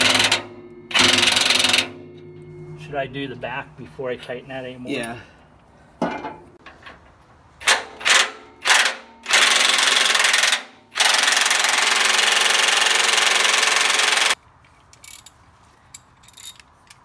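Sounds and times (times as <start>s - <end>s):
impact wrench hammering: 0.0s - 2.4s.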